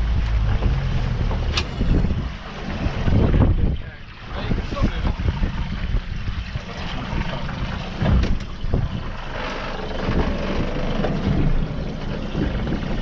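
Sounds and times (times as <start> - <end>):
sea noise: 0.0 - 13.0
wind buffeting microphone: 0.0 - 13.0.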